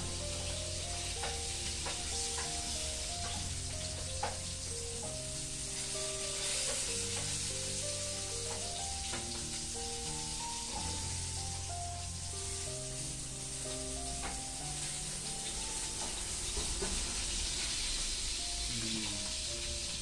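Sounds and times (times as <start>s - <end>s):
food sizzling in a pan: 0.0s - 20.0s
spoon stirring and tapping pan: 0.3s - 5.2s.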